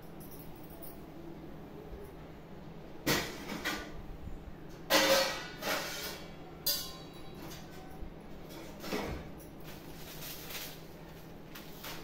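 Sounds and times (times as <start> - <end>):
metal plates clattering: 4.9 - 7.2.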